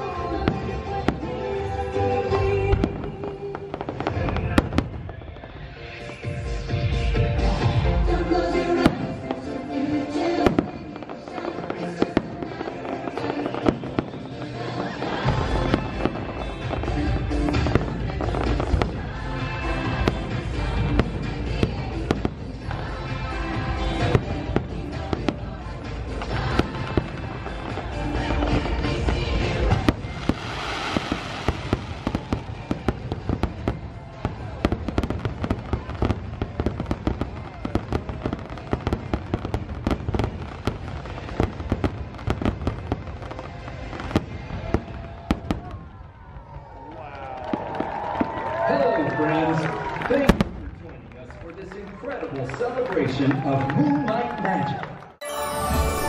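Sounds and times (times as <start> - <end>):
music through loudspeakers: 0.0 - 45.6, 55.2 - 56.0
fireworks bangs: 0.0 - 46.7, 49.8 - 51.1.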